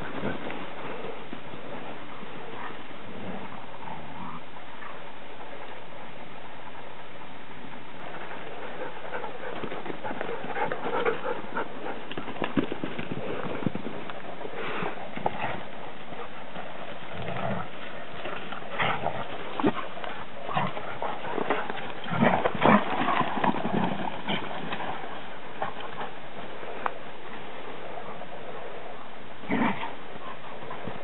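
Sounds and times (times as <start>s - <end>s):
paws scrambling through dry leaves: 8.1s - 26.8s
dogs growling: 8.2s - 24.9s, 29.4s - 31.0s.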